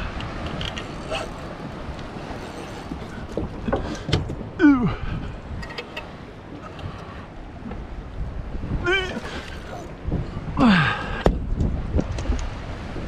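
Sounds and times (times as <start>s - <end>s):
wind buffeting microphone: 0.0s - 13.0s
man grunting: 8.8s - 9.9s
lapping water: 8.8s - 10.0s.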